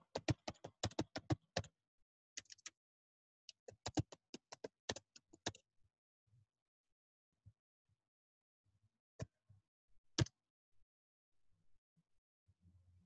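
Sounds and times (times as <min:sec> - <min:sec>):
keyboard typing: 0:00.1 - 0:01.7.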